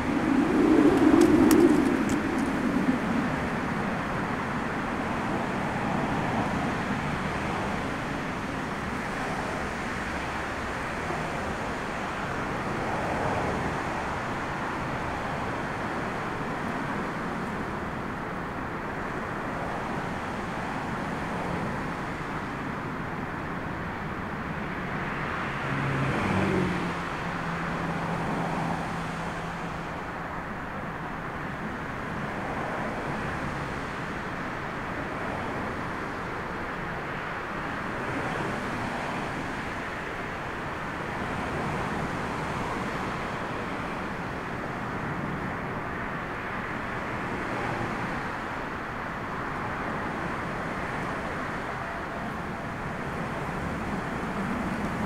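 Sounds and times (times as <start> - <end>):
jet airliner landing roar: 0.0 - 7.9.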